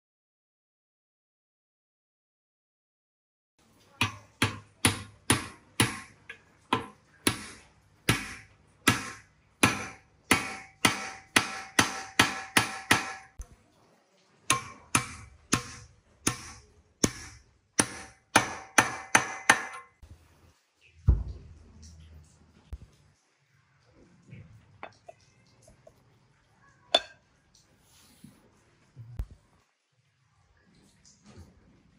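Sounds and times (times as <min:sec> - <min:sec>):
hammer knocking on steel pipe: 0:08.1 - 0:13.3, 0:14.5 - 0:19.8.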